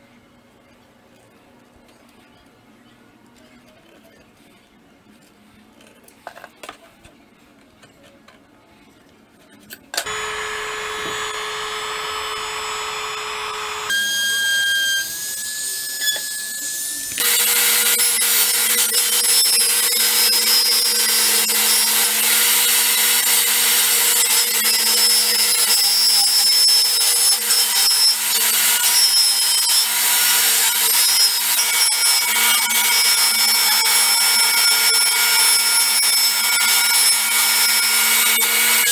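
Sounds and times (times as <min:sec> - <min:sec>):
power tool motor hum: 0:10.0 - 0:38.9
table saw cutting plastic pipe: 0:10.0 - 0:38.9.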